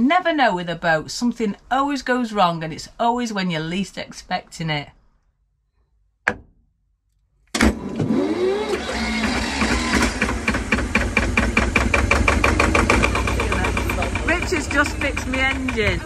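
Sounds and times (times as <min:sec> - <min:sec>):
diesel engine running: 0:07.8 - 0:16.0.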